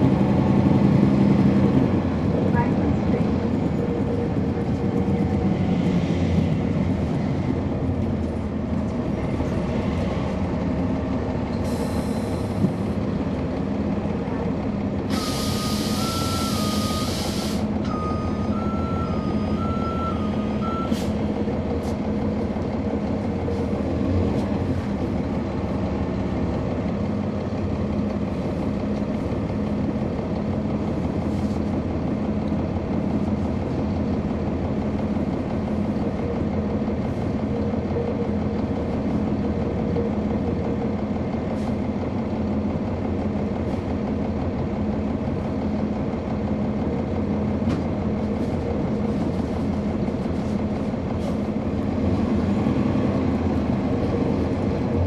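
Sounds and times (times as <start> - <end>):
bus diesel engine running: 0.0 - 55.0
air brake hiss: 11.5 - 12.8, 15.1 - 17.7, 20.9 - 21.2.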